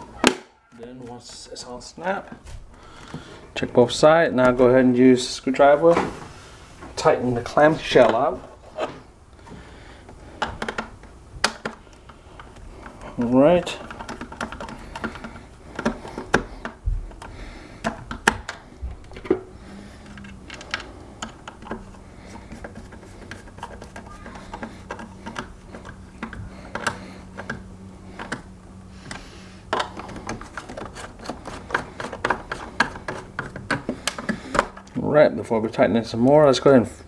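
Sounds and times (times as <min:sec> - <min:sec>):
faint low hum: 0:00.0 - 0:37.0
plastic shell being handled: 0:10.4 - 0:28.5, 0:29.1 - 0:35.0
screwdriver clicking on plastic: 0:13.8 - 0:18.6.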